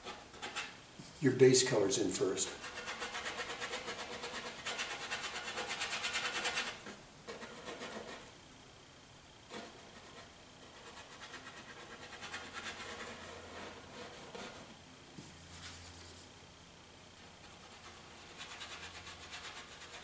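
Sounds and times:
brush scrubbing paint on canvas: 9.6 - 16.4.

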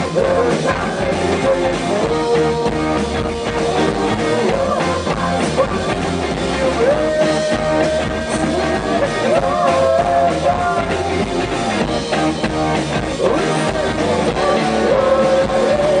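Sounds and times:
electric bass: 0.0 - 16.0
electric guitar: 0.0 - 16.0
steady drum beat: 0.0 - 16.0
woman singing: 4.2 - 6.1, 6.7 - 10.9, 13.2 - 16.0.

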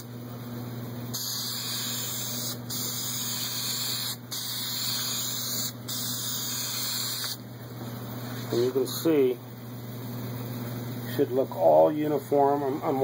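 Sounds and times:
steady low hum: 0.0 - 13.0
aerosol spray can hissing: 1.2 - 7.4.

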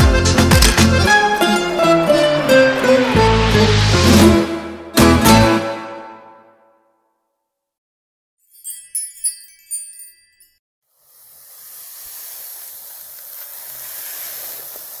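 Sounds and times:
sparkling chime: 8.4 - 10.6
hiss: 10.9 - 15.0.

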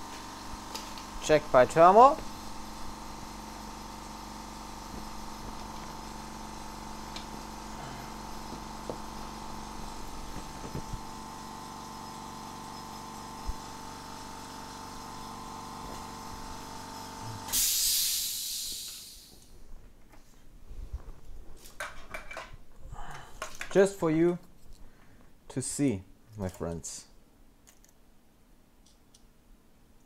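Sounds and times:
electrical hum with tones: 0.0 - 17.6
loud short hiss: 17.3 - 19.5.

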